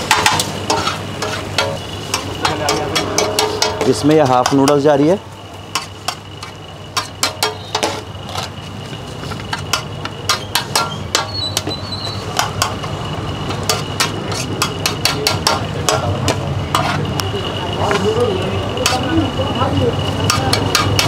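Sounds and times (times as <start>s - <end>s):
metal spatula clacking on griddle: 0.0s - 5.0s, 5.7s - 8.0s, 9.5s - 12.9s, 13.5s - 17.0s, 20.2s - 21.0s
steady low hum: 0.0s - 21.0s.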